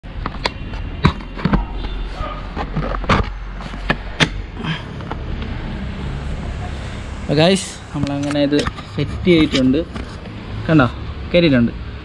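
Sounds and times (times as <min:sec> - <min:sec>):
plastic pipe clicks and knocks: 0:00.2 - 0:01.9, 0:02.6 - 0:04.4.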